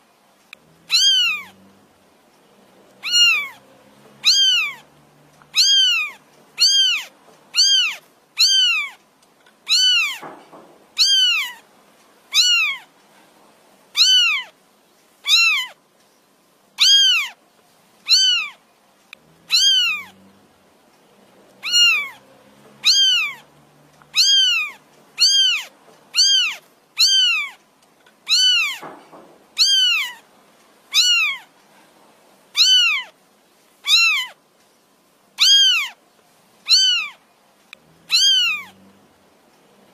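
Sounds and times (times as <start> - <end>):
kitten meowing: 0.8 - 1.6, 3.0 - 3.6, 4.2 - 9.0, 9.6 - 10.4, 11.0 - 11.6, 12.3 - 12.9, 14.0 - 14.5, 15.2 - 15.8, 16.8 - 17.4, 18.0 - 18.6, 19.4 - 20.2, 21.6 - 22.2, 22.8 - 27.6, 28.3 - 29.0, 29.6 - 30.2, 30.9 - 31.5, 32.6 - 33.2, 33.8 - 34.4, 35.4 - 36.0, 36.6 - 37.2, 38.1 - 38.8.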